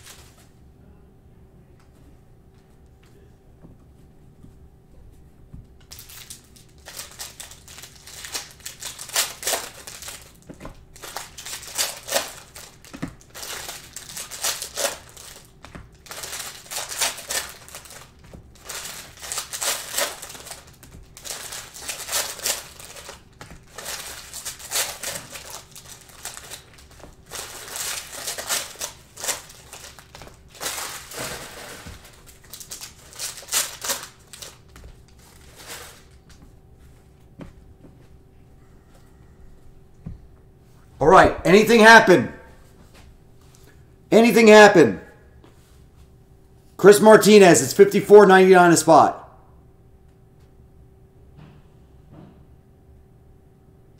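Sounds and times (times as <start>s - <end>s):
foil wrappers tearing and crinkling: 5.9s - 36.2s.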